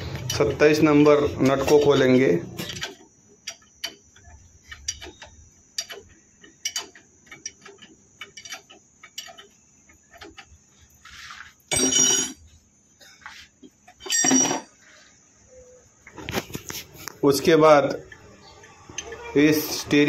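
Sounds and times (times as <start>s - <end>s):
spanners clicking on a nut: 0.2s - 10.6s, 18.0s - 20.0s
metallic clanks: 11.7s - 12.4s, 13.8s - 14.8s.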